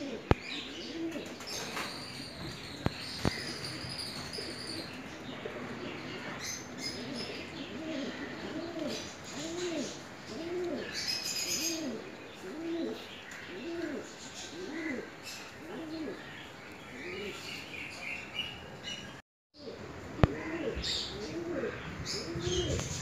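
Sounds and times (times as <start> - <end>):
dove cooing: 0.0 - 1.4, 3.2 - 16.2, 19.6 - 23.0
small birds chirping: 0.1 - 19.2, 20.2 - 23.0.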